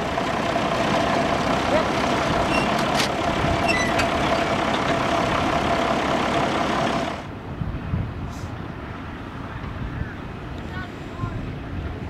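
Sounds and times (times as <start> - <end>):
diesel engine idling: 0.0 - 7.5.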